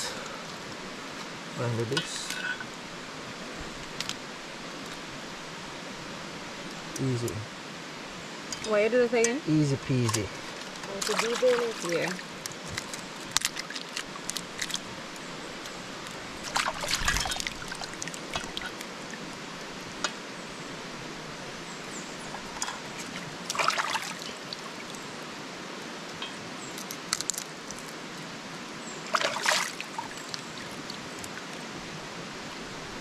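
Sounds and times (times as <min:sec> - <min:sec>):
river water running: 0:00.0 - 0:33.0
short bursts of water: 0:29.1 - 0:30.2.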